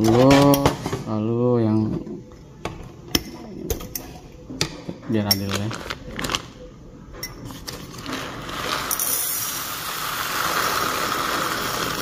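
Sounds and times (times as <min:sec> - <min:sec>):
coffee beans pouring into glass jar: 0:08.0 - 0:12.0.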